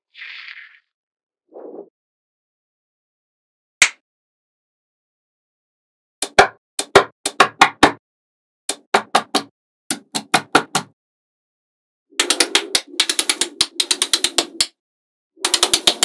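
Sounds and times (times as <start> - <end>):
magnetic balls clicking together: 12.2 - 14.7, 15.4 - 16.0.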